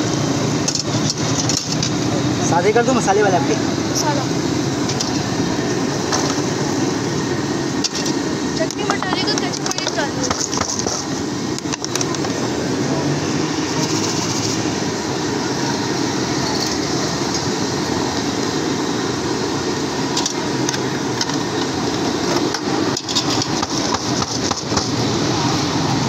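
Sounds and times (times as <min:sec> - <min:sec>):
deep-fat fryers sizzling: 0:00.0 - 0:26.0
street traffic: 0:00.0 - 0:26.0
utensils clattering: 0:00.6 - 0:01.9, 0:22.9 - 0:24.9.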